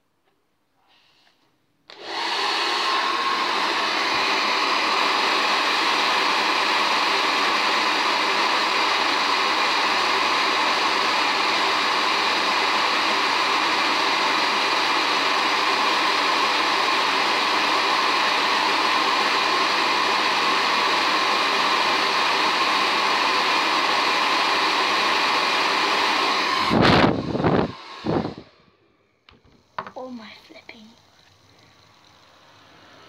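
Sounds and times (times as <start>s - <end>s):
hair dryer blowing: 1.9s - 29.0s, 29.6s - 33.0s.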